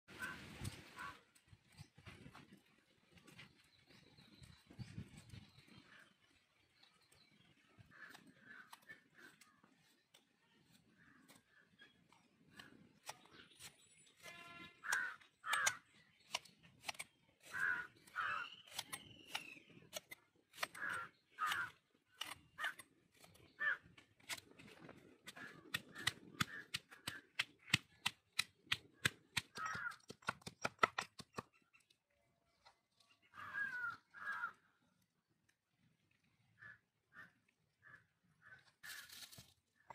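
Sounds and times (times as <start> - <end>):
crows cawing: 0.2 - 1.2, 14.8 - 15.9, 17.4 - 18.6, 20.6 - 21.8, 22.6 - 24.0, 25.3 - 27.8, 29.0 - 30.3, 33.3 - 34.7.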